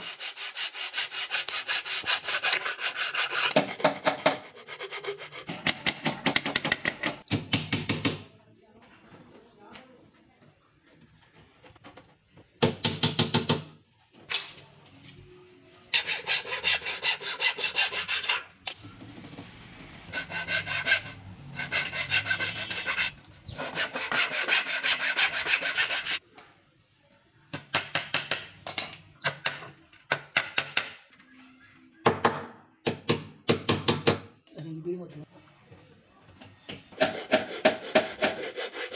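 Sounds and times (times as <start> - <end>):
hand saw cutting wood: 0.0 - 5.6, 15.9 - 18.4, 20.1 - 26.2, 37.0 - 38.9.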